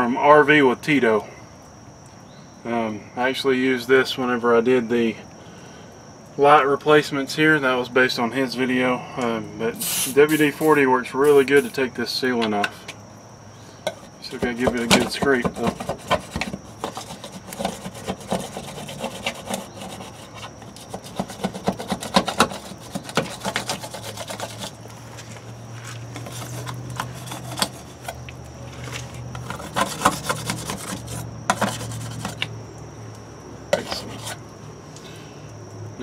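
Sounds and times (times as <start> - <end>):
steady low hum: 7.2 - 36.0
metal scraper scraping sealant: 9.8 - 11.8, 13.9 - 24.9, 26.1 - 32.5, 33.7 - 34.4.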